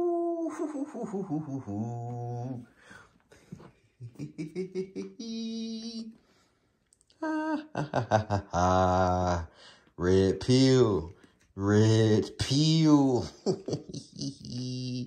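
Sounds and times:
man humming a tune: 0.0s - 2.7s, 4.0s - 6.2s, 7.2s - 7.8s, 8.5s - 9.5s, 14.2s - 15.0s.

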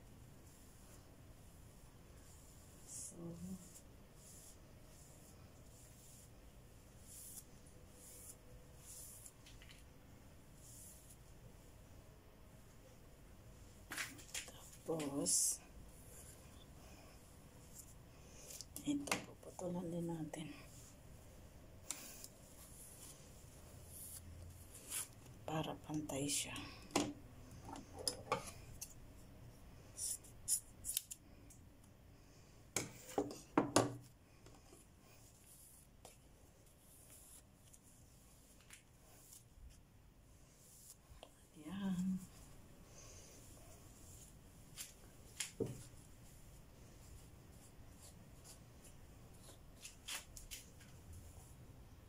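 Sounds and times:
hair and clothing rustling: 13.7s - 26.5s, 34.6s - 51.6s.

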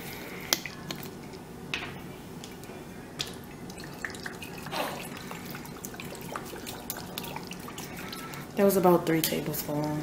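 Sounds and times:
sauce dripping into liquid: 2.4s - 8.6s.

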